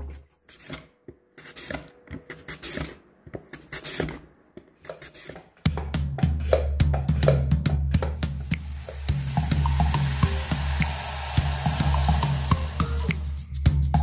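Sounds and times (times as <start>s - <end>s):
background music with drums: 5.6s - 14.0s.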